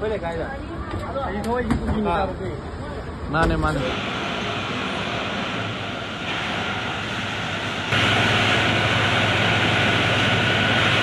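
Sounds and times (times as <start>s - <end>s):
pump engine rumbling: 3.6s - 11.0s
hose jet spraying water: 3.7s - 11.0s.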